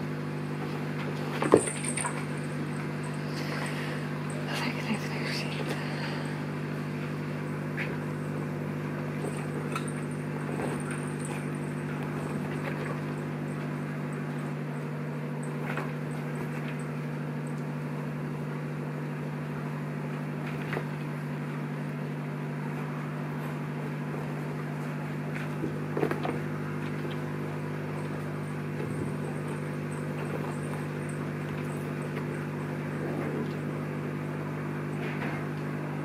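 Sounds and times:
steady electrical hum: 0.0s - 36.0s
kittens knocking and rustling fabric: 1.0s - 3.6s, 9.1s - 13.8s.

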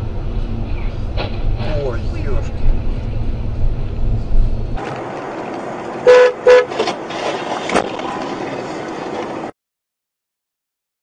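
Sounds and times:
road noise: 0.0s - 9.6s
car horn honking: 6.0s - 6.8s.

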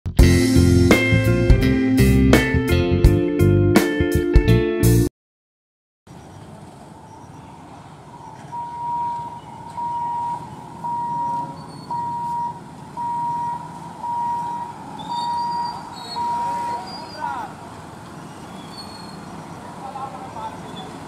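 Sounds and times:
road traffic: 6.1s - 21.0s
level crossing warning beeps: 8.5s - 17.2s.

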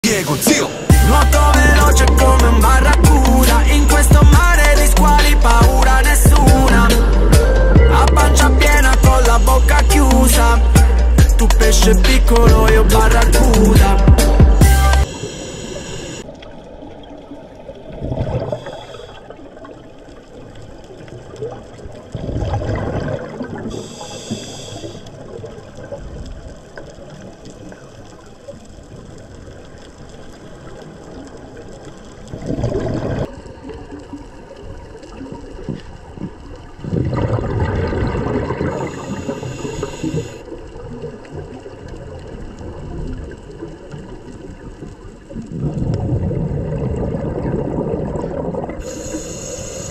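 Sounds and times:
hissing regulator inhalations: 0.1s - 16.3s, 18.4s - 19.3s, 23.6s - 25.2s, 38.6s - 40.5s, 48.8s - 49.9s
underwater rumble: 1.0s - 10.6s, 11.2s - 49.9s
exhaled bubbles underwater: 16.2s - 49.9s.

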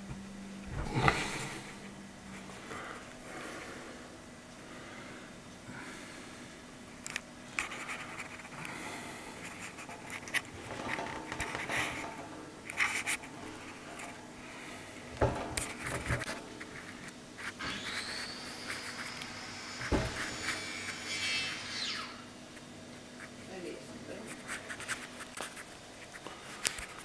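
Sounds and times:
thin high whine: 0.0s - 27.0s
dull thumps: 15.2s - 16.3s.

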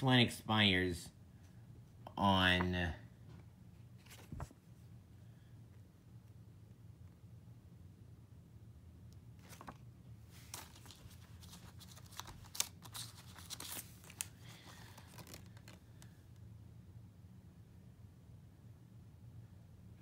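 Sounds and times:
faint low hum: 0.0s - 20.0s
paper rustling and crinkling: 3.9s - 4.7s, 9.4s - 16.2s.

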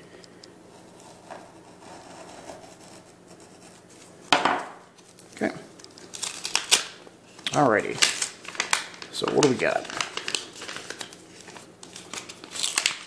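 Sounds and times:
paper crackling: 5.0s - 13.0s
blade slitting paper envelope: 7.9s - 13.0s.

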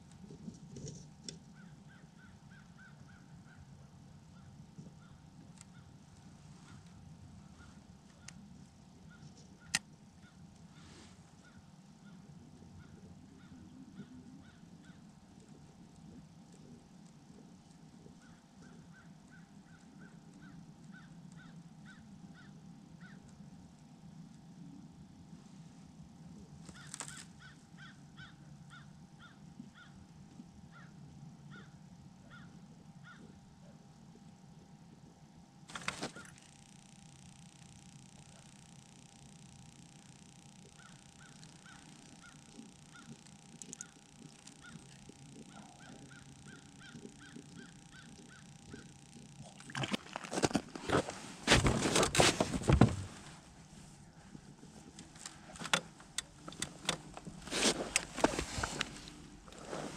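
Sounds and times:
faint low hum: 0.0s - 59.9s
faint bird chirp: 1.5s - 6.0s, 17.6s - 23.3s, 36.1s - 49.5s
bird calling: 1.6s - 3.7s, 26.7s - 30.0s, 37.8s - 53.3s
fish flopping on ice: 49.4s - 52.9s.

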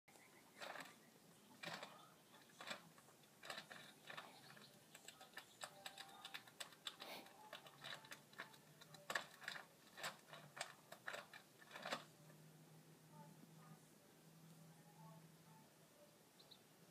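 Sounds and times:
squirrel chewing dry kibble: 0.2s - 12.4s.

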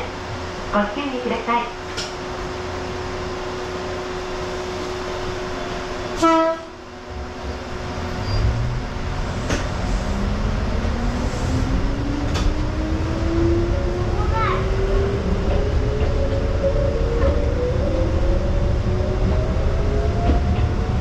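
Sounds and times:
electric train humming: 0.0s - 21.0s
train rumble: 0.0s - 21.0s
train horn toot: 6.2s - 6.8s.

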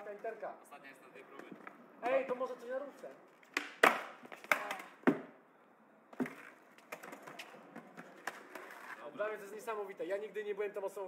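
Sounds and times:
skateboard clacking on concrete: 3.4s - 5.3s, 6.2s - 9.0s
skateboard tail pop: 3.5s - 5.3s.

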